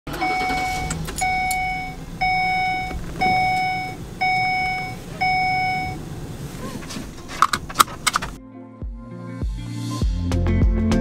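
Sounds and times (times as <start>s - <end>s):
dashboard warning chime: 0.1s - 7.2s.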